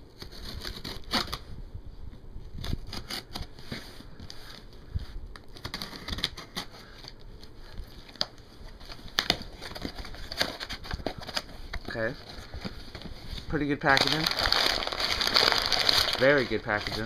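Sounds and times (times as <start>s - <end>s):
blade scraping cardboard and tape: 0.0s - 1.4s, 2.6s - 4.6s, 5.5s - 7.0s
box being handled: 7.8s - 17.0s.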